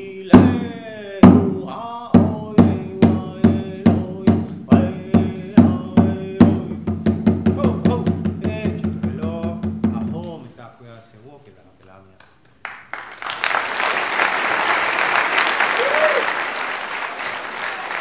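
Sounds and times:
man singing: 0:00.0 - 0:10.5
hand drum beating: 0:01.2 - 0:10.4.

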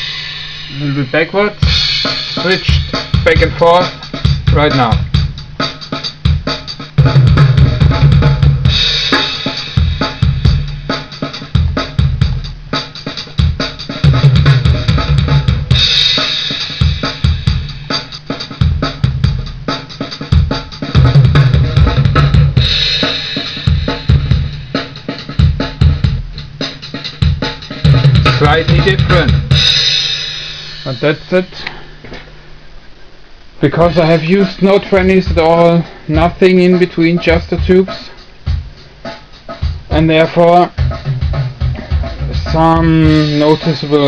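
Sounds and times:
cymbal crashes: 0:00.0 - 0:03.4, 0:28.4 - 0:31.7
drum kit playing: 0:00.0 - 0:32.1, 0:33.6 - 0:44.0.

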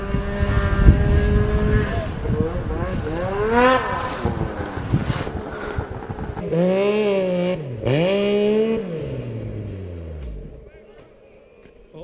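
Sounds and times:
wind noise: 0:00.0 - 0:06.6
loud snowmobile engine: 0:00.0 - 0:10.4
snowmobile engine revving: 0:00.0 - 0:10.8.

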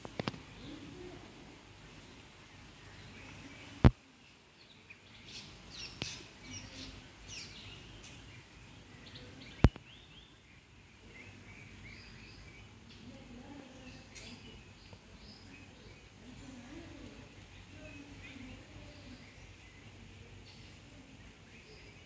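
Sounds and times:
sharp clicks: 0:00.0 - 0:00.4, 0:09.6 - 0:09.9
wild birds chirping: 0:00.0 - 0:22.0.

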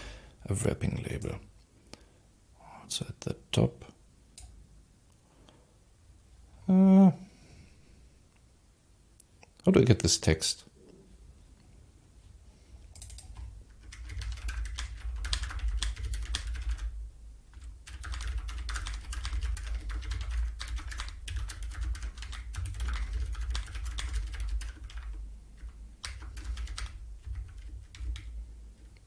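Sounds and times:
typing on computer keyboard: 0:12.9 - 0:28.4.

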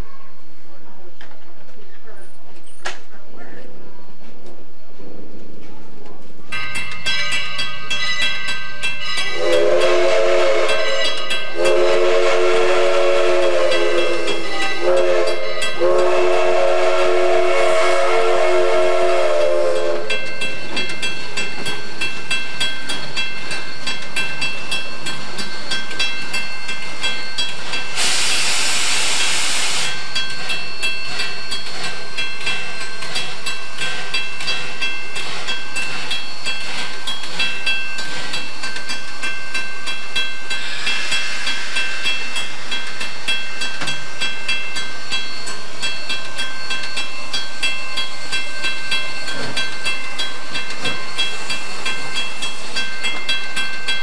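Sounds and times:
steam locomotive whistle: 0:09.0 - 0:20.2
steam hissing: 0:09.4 - 0:20.1, 0:27.6 - 0:30.2, 0:40.4 - 0:53.6.

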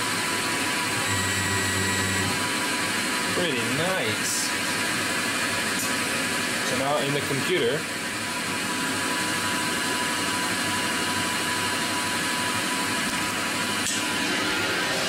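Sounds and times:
lathe whirring: 0:00.1 - 0:03.5.

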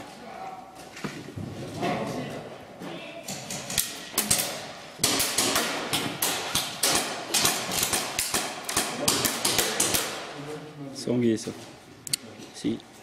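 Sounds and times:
airsoft guns firing: 0:03.7 - 0:10.4.

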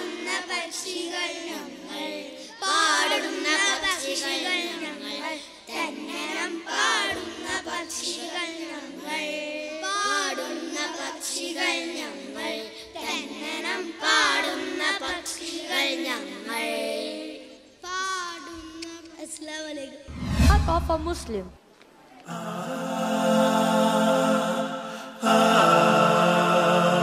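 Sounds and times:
boys singing together: 0:00.0 - 0:17.8, 0:22.3 - 0:27.0.

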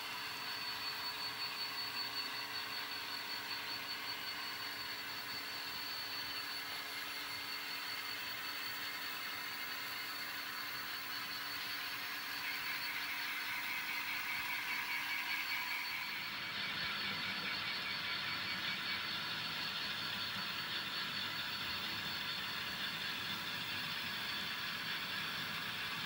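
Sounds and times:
thin high whine: 0:00.0 - 0:19.0
model trains whirring on track: 0:00.0 - 0:26.0.

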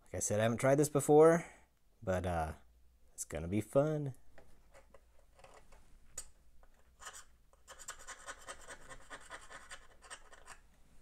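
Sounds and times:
needle file rasping metal: 0:07.0 - 0:10.6.

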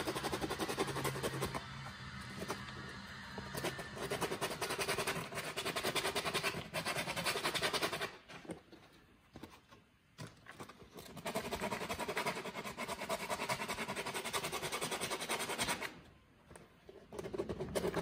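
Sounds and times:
sandpaper scratching on plastic: 0:00.0 - 0:08.4, 0:11.0 - 0:16.0, 0:17.1 - 0:18.0.

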